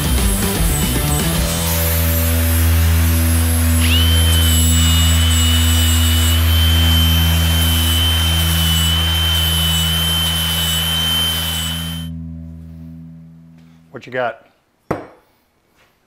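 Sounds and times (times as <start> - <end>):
angle grinder whine: 0.0 - 13.8
abrasive wheel hissing on metal: 3.8 - 12.1.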